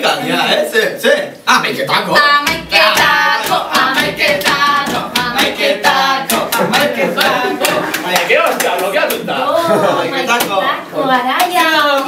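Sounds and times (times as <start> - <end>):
children singing together: 2.2 - 8.0
hand claps: 6.2 - 9.2.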